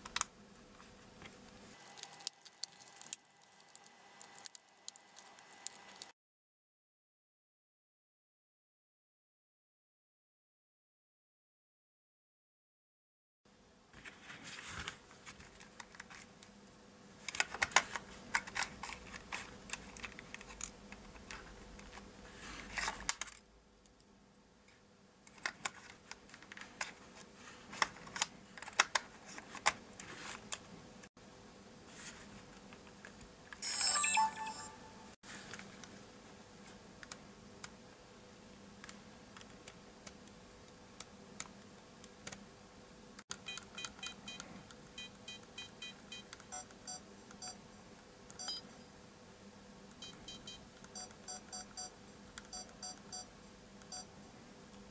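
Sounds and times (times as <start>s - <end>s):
short electronic beeps: 33.6s - 35.1s.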